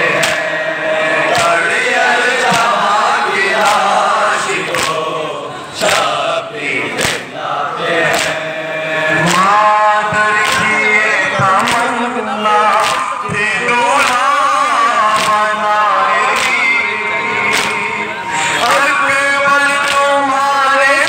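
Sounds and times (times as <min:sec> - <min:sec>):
sharp beat: 0:00.0 - 0:05.1, 0:09.2 - 0:20.2
crowd of men chanting: 0:00.0 - 0:21.0
man reciting into microphone: 0:00.0 - 0:21.0.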